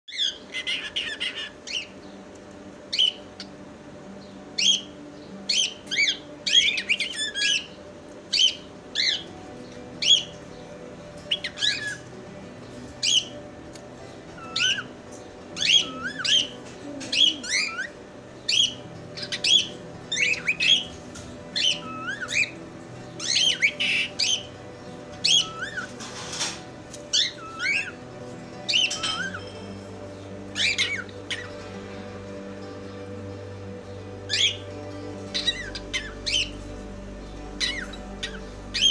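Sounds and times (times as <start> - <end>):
cockatiel chirping and whistling: 11.3 - 12.0, 14.4 - 14.9, 15.6 - 17.9, 21.6 - 22.6, 25.2 - 25.9, 27.1 - 28.0.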